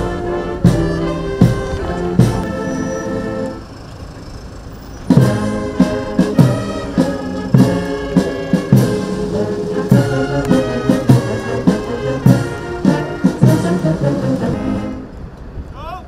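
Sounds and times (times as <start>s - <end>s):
drum beat: 0.0s - 2.6s, 5.1s - 13.9s
military brass band playing: 0.0s - 3.7s, 5.1s - 15.2s.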